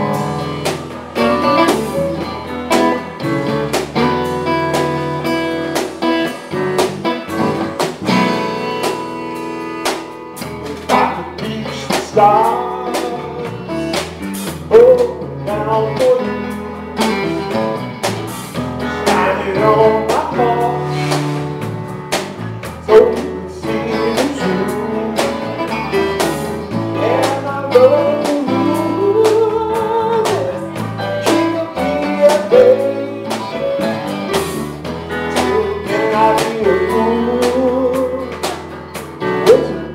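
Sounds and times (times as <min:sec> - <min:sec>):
live band playing: 0:00.0 - 0:39.9.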